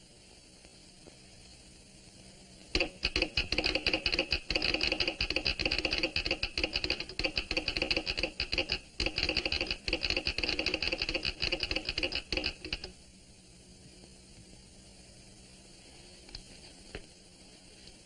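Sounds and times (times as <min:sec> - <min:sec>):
telegraph key clicking morse code: 0:02.8 - 0:13.0.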